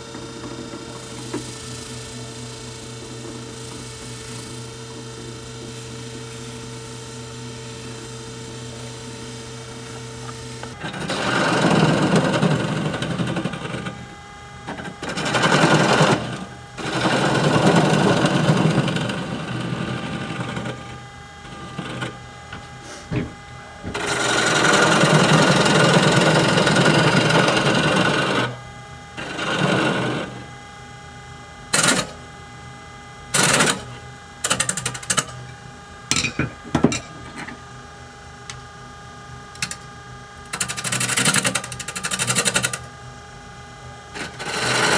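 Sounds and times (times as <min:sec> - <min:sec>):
lathe motor humming: 0:00.0 - 0:44.9
turning tool rasping wood: 0:23.9 - 0:28.5, 0:29.2 - 0:30.4, 0:44.2 - 0:44.9.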